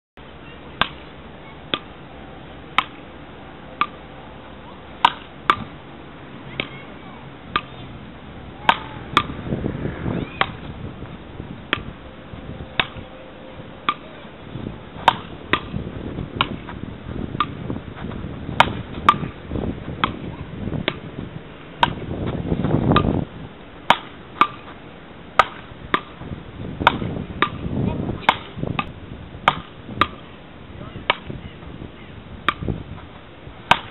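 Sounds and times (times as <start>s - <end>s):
paddle rackets hitting ball: 0.8s - 2.0s, 2.7s - 3.0s, 3.8s - 4.0s, 5.0s - 5.8s, 6.5s - 6.9s, 7.5s - 7.8s, 8.6s - 9.4s, 10.2s - 10.7s, 11.7s - 11.9s, 12.8s - 13.0s, 13.8s - 14.2s, 15.0s - 17.7s, 18.5s - 21.1s, 21.8s - 23.2s, 23.8s - 26.2s, 26.8s - 30.3s, 31.0s - 31.4s, 32.4s - 32.8s, 33.6s - 33.9s.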